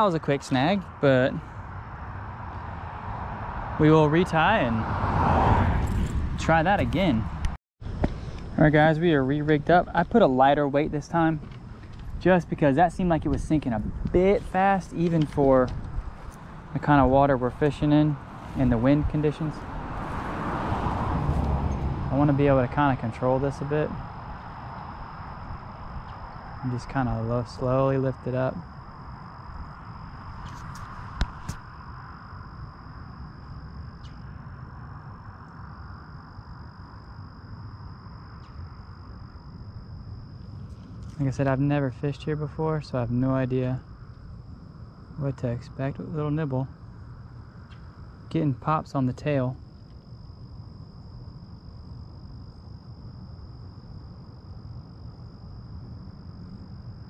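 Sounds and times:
wind rumbling on microphone: 0:00.0 - 0:57.0
high-pitched insect trill: 0:08.6 - 0:57.0
steady high-pitched tone: 0:22.0 - 0:57.0.

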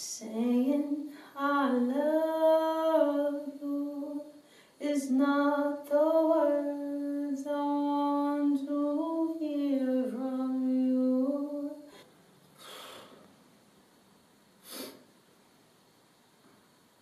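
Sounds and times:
woman singing a cappella: 0:00.0 - 0:12.0
soft breaths: 0:11.8 - 0:13.5, 0:14.6 - 0:15.2.

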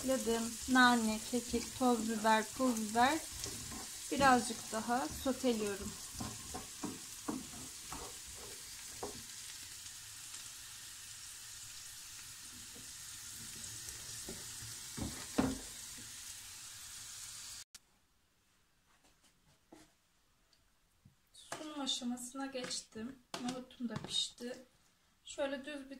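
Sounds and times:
chickpeas sizzling in a pan: 0:00.0 - 0:17.7
wooden spoon knocking a pan: 0:01.4 - 0:09.4, 0:14.2 - 0:15.7.

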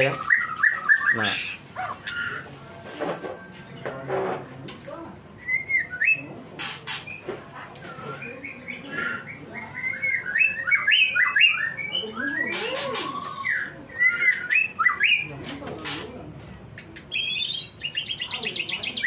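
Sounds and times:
bird singing whistled notes: 0:05.4 - 0:06.3, 0:07.8 - 0:15.3.

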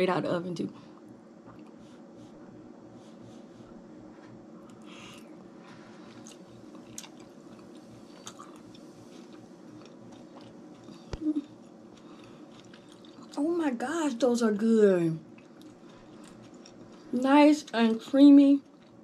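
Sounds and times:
person chewing wetly: 0:01.5 - 0:01.8, 0:06.1 - 0:13.4, 0:15.3 - 0:17.9, 0:18.6 - 0:19.0.

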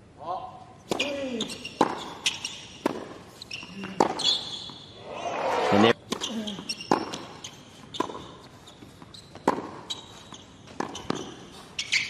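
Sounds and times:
tennis ball hit by racquet: 0:00.9 - 0:04.3, 0:06.1 - 0:08.4, 0:09.4 - 0:09.9, 0:10.7 - 0:11.4
sneaker squeaks: 0:00.9 - 0:05.0, 0:06.1 - 0:12.0.

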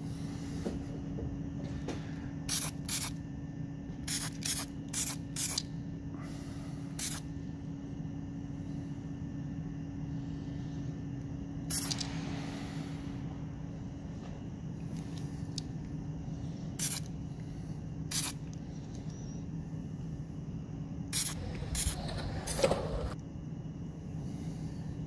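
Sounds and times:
spray can hissing: 0:02.5 - 0:03.2, 0:04.0 - 0:05.7, 0:07.0 - 0:07.2, 0:11.7 - 0:12.0, 0:16.8 - 0:17.1, 0:18.1 - 0:18.4, 0:21.1 - 0:22.0
low hum: 0:05.6 - 0:25.0.

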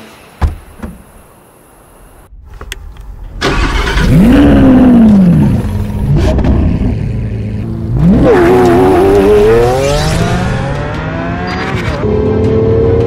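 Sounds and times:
sharp thump: 0:00.4 - 0:01.1
car engine starting and idling: 0:02.5 - 0:12.0.

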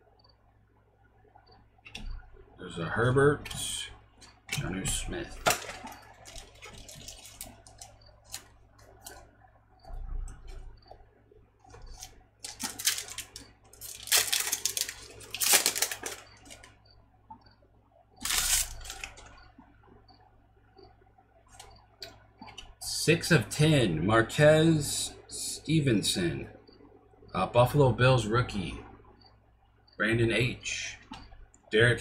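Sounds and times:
wrapper tearing and crinkling: 0:05.4 - 0:08.5, 0:12.0 - 0:16.7, 0:18.2 - 0:19.2
cards being handled: 0:11.7 - 0:16.7, 0:18.2 - 0:19.4.

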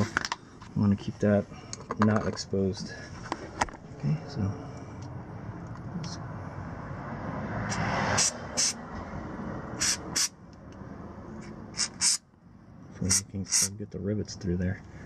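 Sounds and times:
aerosol can spraying: 0:07.7 - 0:08.8, 0:09.8 - 0:10.3, 0:11.8 - 0:12.2.

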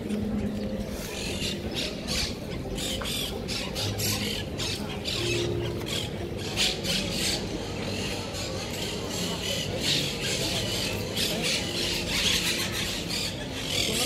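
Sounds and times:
footsteps on stone paving: 0:00.0 - 0:02.0.

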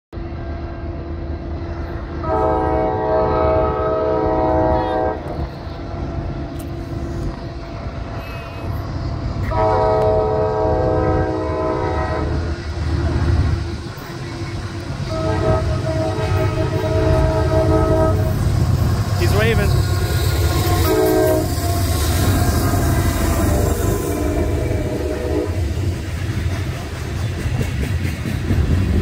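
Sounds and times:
locomotive air horn blasts: 0:02.2 - 0:05.4, 0:09.4 - 0:12.4, 0:15.0 - 0:18.4, 0:20.5 - 0:22.4, 0:23.4 - 0:25.8.

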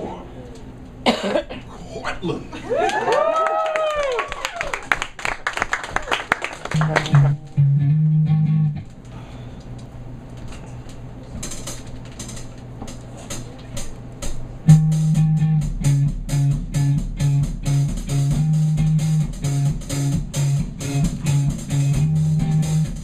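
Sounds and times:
live rock band playing: 0:14.7 - 0:23.0.

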